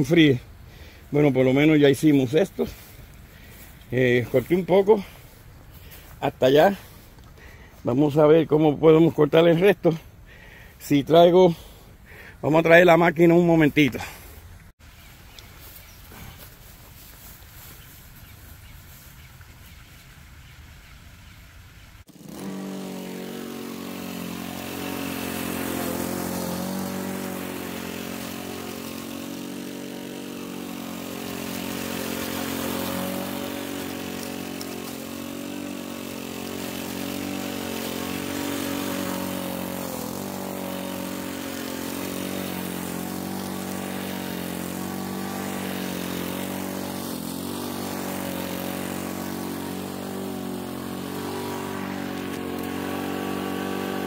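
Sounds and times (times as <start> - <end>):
lawn mower engine bogging in grass: 22.1 - 54.0.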